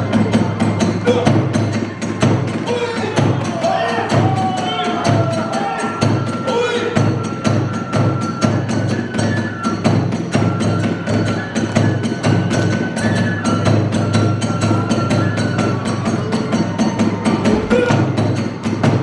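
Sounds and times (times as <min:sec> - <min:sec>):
bamboo flute melody: 0:00.0 - 0:19.0
drum beat: 0:17.1 - 0:19.0.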